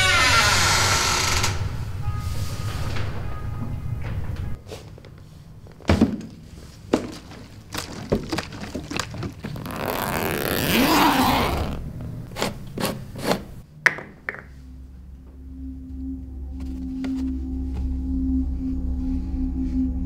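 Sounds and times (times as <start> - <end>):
scraping: 1.2 - 13.6.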